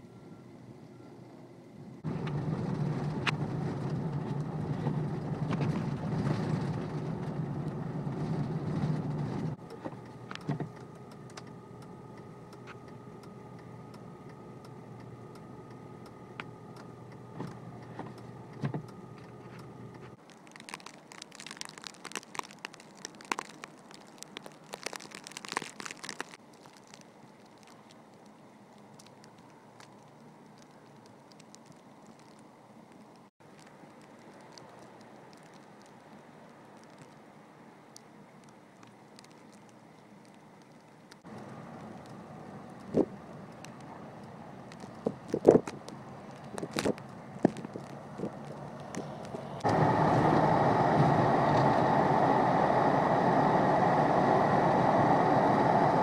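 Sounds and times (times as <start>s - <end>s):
car cabin hum with faint whine: 0.0s - 20.3s, 36.0s - 56.0s
low road rumble: 0.0s - 56.0s
crackling ticks: 9.6s - 37.3s, 37.9s - 49.8s.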